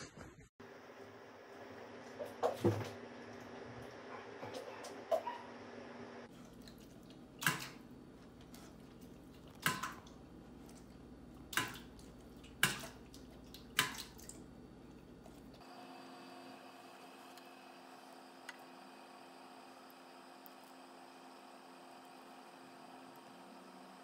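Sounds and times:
dog splashing water in metal bowl: 0:06.5 - 0:14.9.

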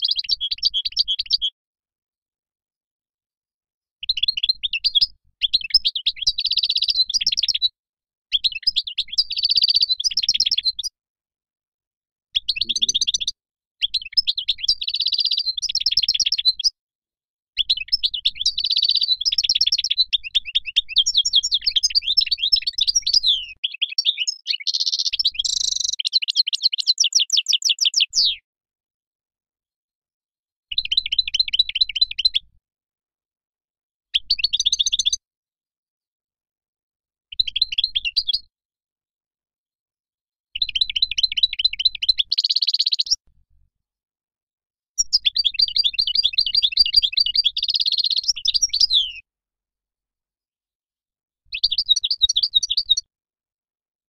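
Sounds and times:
bird twittering and trilling: 0:00.0 - 0:01.5, 0:04.0 - 0:07.7, 0:08.3 - 0:10.9, 0:12.4 - 0:16.7, 0:17.6 - 0:28.4, 0:30.7 - 0:32.4, 0:34.2 - 0:35.2, 0:40.6 - 0:43.2, 0:45.0 - 0:49.2, 0:51.5 - 0:53.1.

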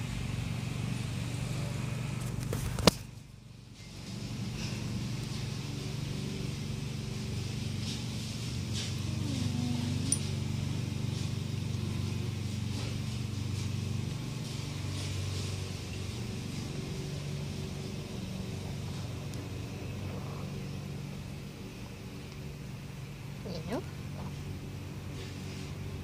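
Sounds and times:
cat purring: 0:07.6 - 0:12.9, 0:17.7 - 0:21.2.

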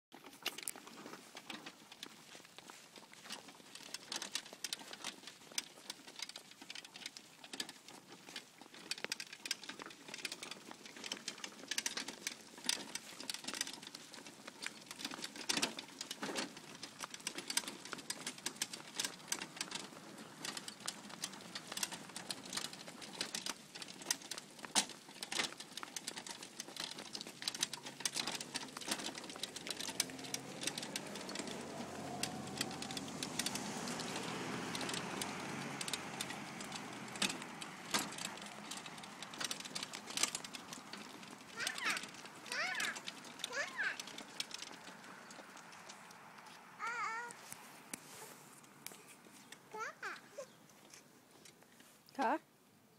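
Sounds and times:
wagon rattling on concrete: 0:00.1 - 0:52.4
vehicle engine hum: 0:09.8 - 0:51.4.

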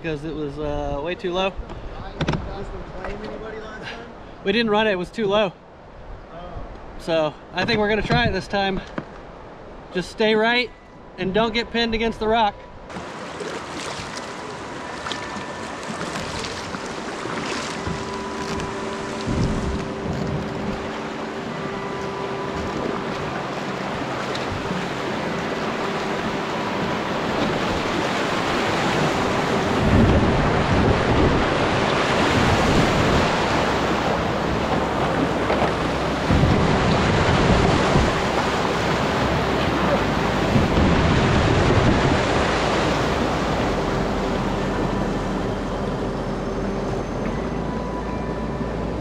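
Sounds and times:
whitewater rushing and splashing: 0:12.9 - 0:47.0
wind rumble on microphone: 0:13.8 - 0:49.0.

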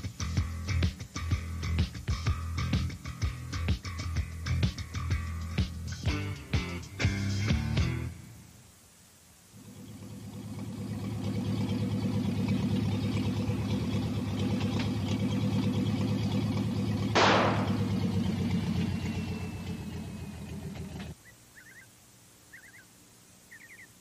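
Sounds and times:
car engine running: 0:09.6 - 0:21.2.

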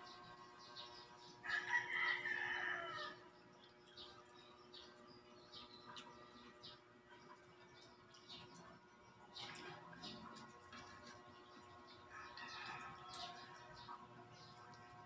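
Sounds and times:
rooster crowing: 0:01.4 - 0:03.3, 0:12.1 - 0:13.5.

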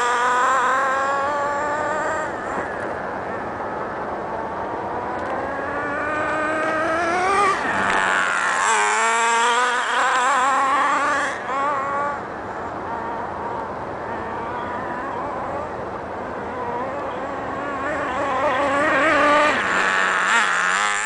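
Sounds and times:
rc truck engine at high revs: 0:00.0 - 0:21.0.

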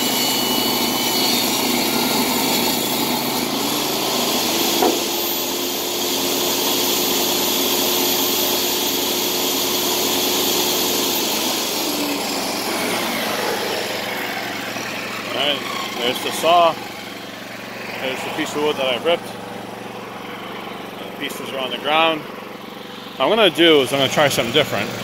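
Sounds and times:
saw blade spinning free: 0:00.0 - 0:21.0
generator running: 0:00.0 - 0:25.0
table saw cutting wood: 0:00.0 - 0:25.0
sharp knock: 0:04.7 - 0:05.3.

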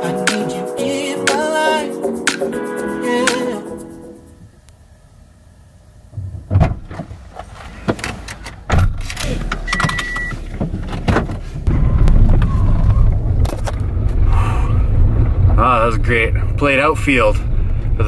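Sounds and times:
car engine rumbling: 0:04.2 - 0:18.0
car door shutting: 0:06.2 - 0:13.9
short electronic beep: 0:09.7 - 0:10.4.

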